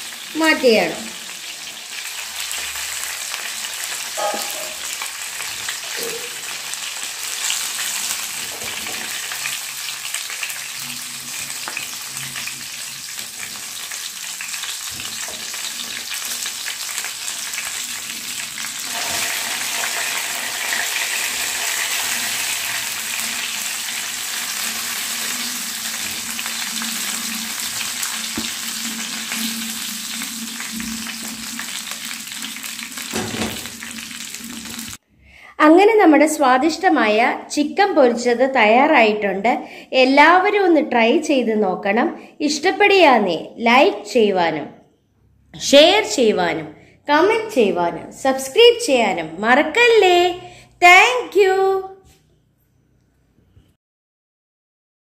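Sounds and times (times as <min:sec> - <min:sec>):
chicken sizzling in oil: 0:00.0 - 0:35.0.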